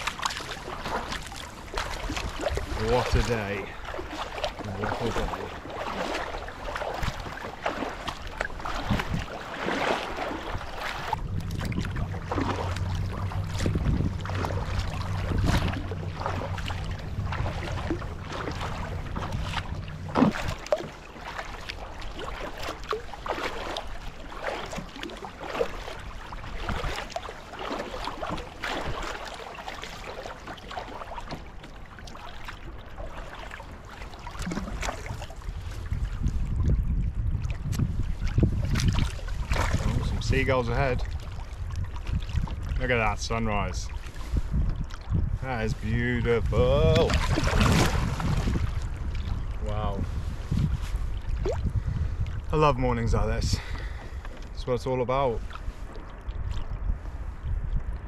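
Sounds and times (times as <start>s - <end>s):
wind on microphone: 0.0s - 27.2s, 34.4s - 58.0s
paddle splashing in water: 0.0s - 58.0s
low steady hum: 10.2s - 23.4s.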